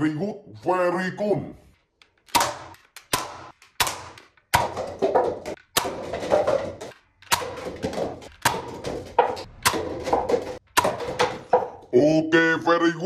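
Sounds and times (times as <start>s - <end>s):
paper cups clattering: 2.8s - 11.9s.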